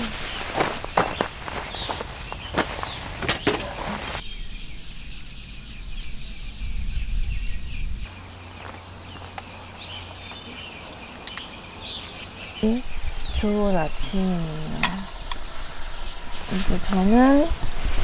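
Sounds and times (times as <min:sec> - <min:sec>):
tent fabric rustling: 0:00.0 - 0:04.2, 0:15.5 - 0:18.0
insects buzzing: 0:00.0 - 0:18.0
low wind rumble: 0:00.0 - 0:18.0.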